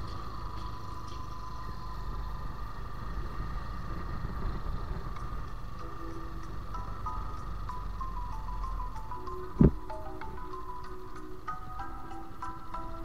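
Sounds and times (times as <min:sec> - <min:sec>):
motorcycle engine running: 0:00.0 - 0:13.0
wind and road rumble: 0:00.0 - 0:13.0.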